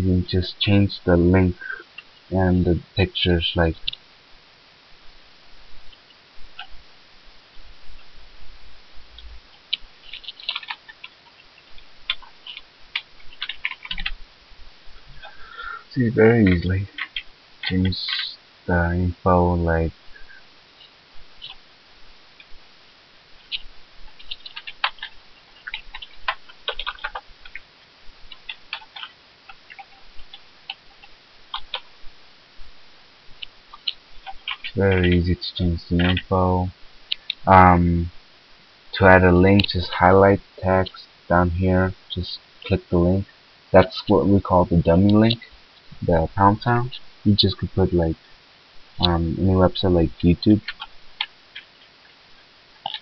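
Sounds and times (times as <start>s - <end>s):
keyboard keys clicking: 9.7s - 11.2s, 12.1s - 14.2s, 24.2s - 27.6s, 28.3s - 29.1s, 33.8s - 35.2s, 36.0s - 36.4s.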